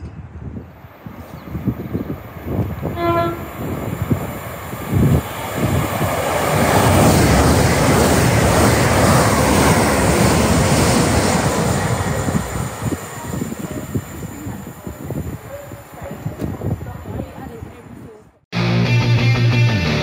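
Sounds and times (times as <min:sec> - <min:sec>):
train rumble and wheel noise: 0:00.0 - 0:18.4
train horn: 0:02.9 - 0:03.5.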